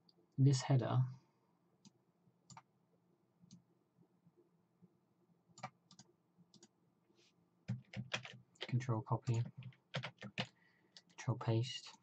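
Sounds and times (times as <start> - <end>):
faint computer mouse clicks: 1.8 - 2.7.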